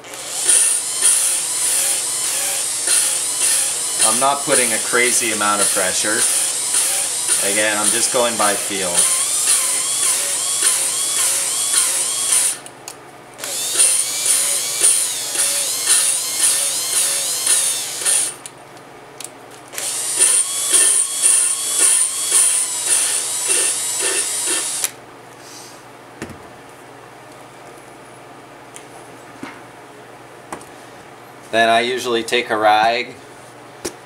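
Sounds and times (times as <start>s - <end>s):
cordless drill motor whine: 0.0s - 12.7s, 13.4s - 18.4s, 19.8s - 25.0s.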